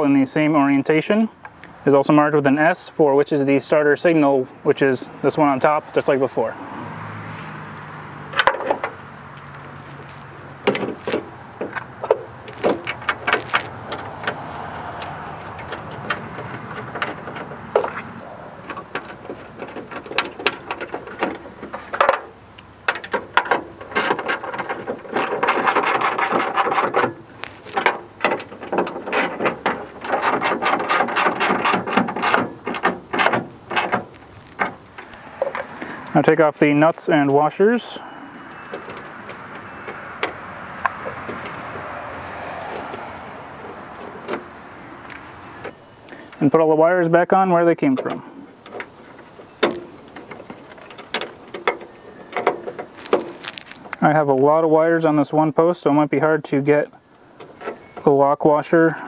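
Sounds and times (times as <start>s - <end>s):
metal parts knocking and rattling: 15.0s - 34.9s.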